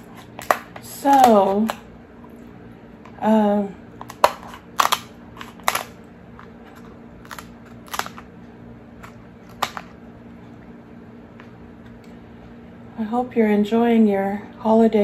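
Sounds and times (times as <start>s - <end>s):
scissors cracking crab shell: 4.0s - 6.5s, 7.2s - 8.3s.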